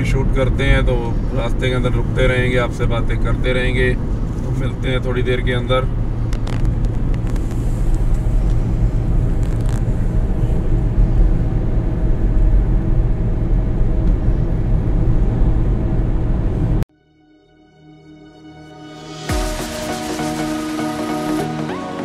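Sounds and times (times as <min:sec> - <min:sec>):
car engine and tyre rumble: 0:00.0 - 0:16.9
road hiss: 0:07.2 - 0:10.8.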